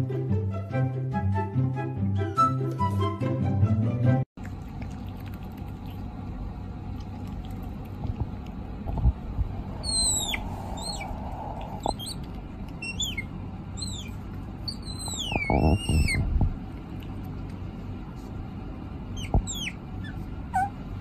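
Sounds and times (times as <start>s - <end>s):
low room noise: 4.4s - 21.0s
otter chirping: 9.6s - 16.4s, 19.1s - 20.8s.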